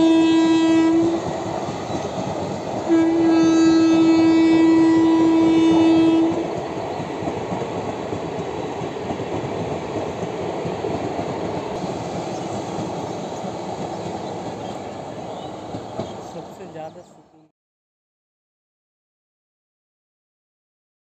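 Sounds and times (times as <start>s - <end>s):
train horn: 0.0s - 1.3s, 2.8s - 6.6s
train coaches running over rails: 0.0s - 17.2s.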